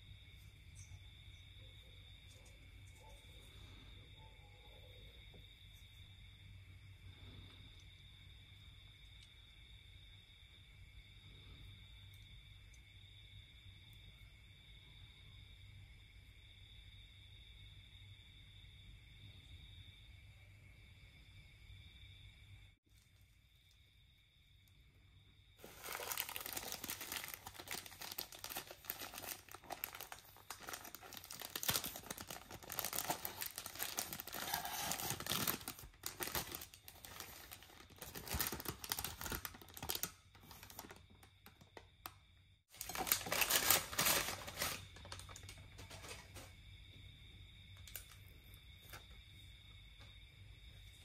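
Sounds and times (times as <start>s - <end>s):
bubble wrap and paper crinkling: 25.6s - 41.6s, 42.7s - 46.2s.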